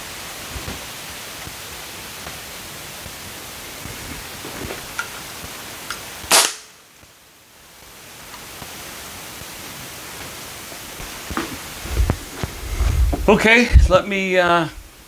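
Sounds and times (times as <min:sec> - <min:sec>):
steady hiss: 0:00.0 - 0:15.0
air rifle shot: 0:06.3 - 0:06.8.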